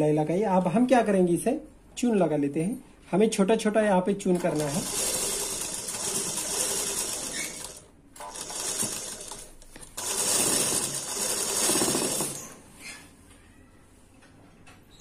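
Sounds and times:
sewing machine stitching: 4.3 - 12.6.

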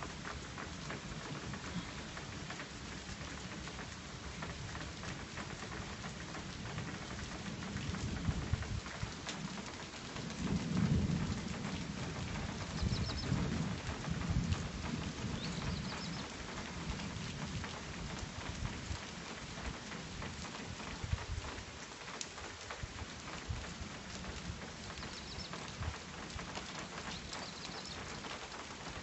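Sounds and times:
rain pattering: 0.0 - 29.0
thunder rumbling: 10.3 - 17.6.

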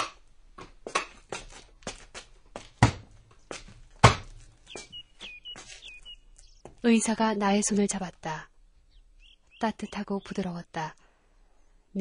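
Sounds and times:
footsteps walking: 0.6 - 6.8
bird chirping: 4.5 - 12.0.

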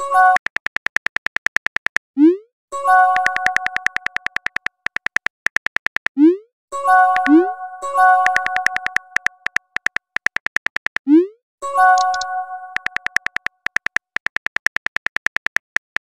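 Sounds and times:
keyboard typing clicks: 0.0 - 2.1, 2.9 - 6.4, 7.0 - 11.2, 11.8 - 16.0
message chime: 6.8 - 9.3.

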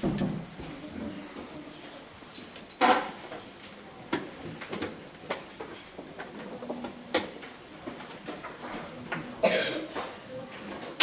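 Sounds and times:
person coughing: 9.4 - 10.0.

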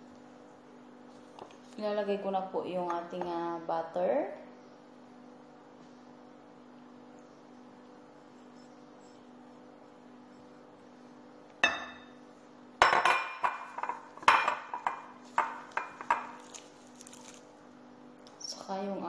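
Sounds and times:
spatula knocking on ceramic bowls: 12.8 - 16.3.

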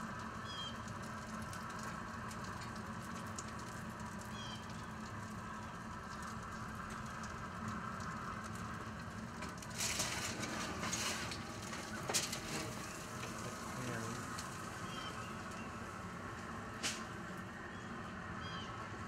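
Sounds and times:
aluminium foil crinkling: 5.0 - 15.8.

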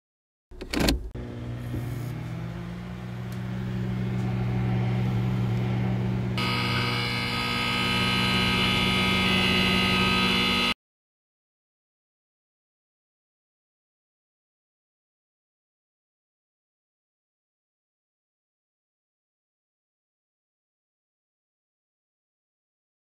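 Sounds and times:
switch clunk: 0.6 - 1.8
low electrical hum: 1.0 - 10.7
high electrical buzz: 3.0 - 10.8.

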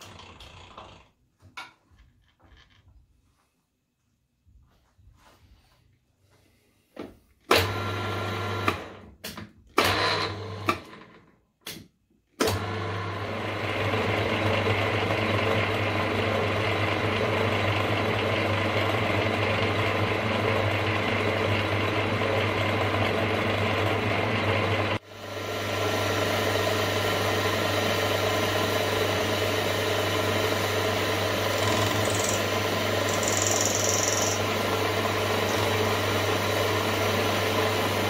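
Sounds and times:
milling machine motor humming: 17.0 - 38.0
end mill cutting metal: 25.8 - 38.0.

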